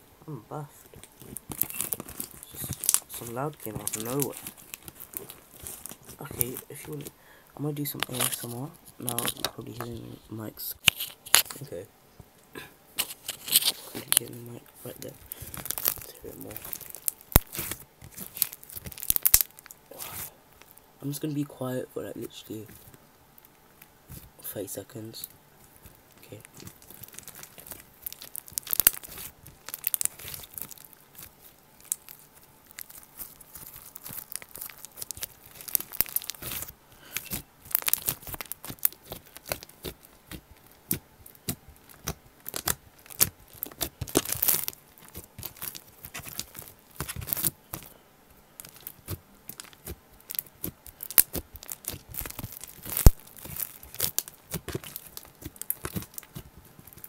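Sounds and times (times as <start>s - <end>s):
slime squished by hand: 0.9s - 7.2s, 13.0s - 20.9s, 25.6s - 48.0s, 48.6s - 57.0s.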